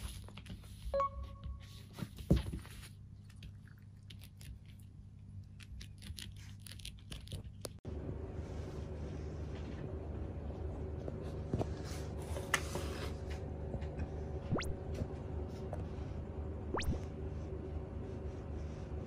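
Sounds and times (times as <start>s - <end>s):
low room hum: 0.0s - 19.0s.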